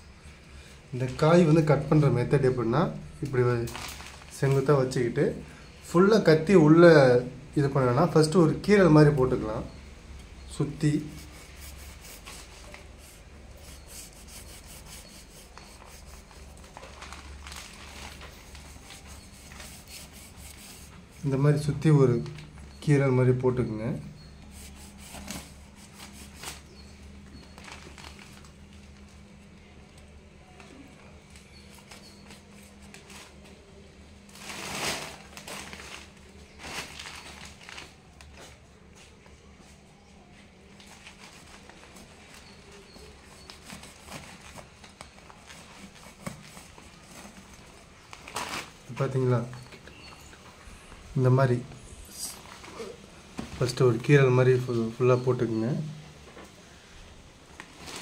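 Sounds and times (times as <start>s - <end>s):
newspaper crinkling and rustling: 3.6s - 5.0s, 10.9s - 21.4s, 24.6s - 29.4s, 31.2s - 33.7s, 34.3s - 38.6s, 40.6s - 50.6s, 57.5s - 58.0s
knife scraping fruit rind: 10.9s - 16.7s, 18.4s - 21.4s, 24.2s - 27.5s, 42.4s - 44.7s.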